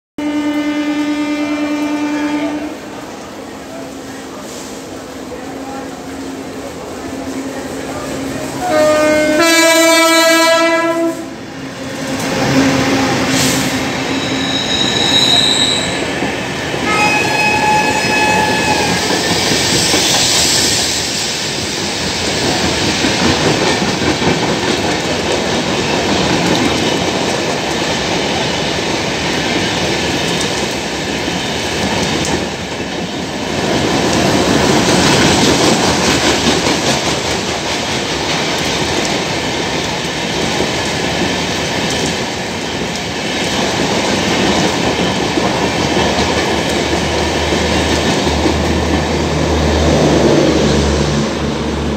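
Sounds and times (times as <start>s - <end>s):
train wheels rushing on rails: 0.2s - 51.9s
wheels clacking over rail joints: 22.0s - 49.7s.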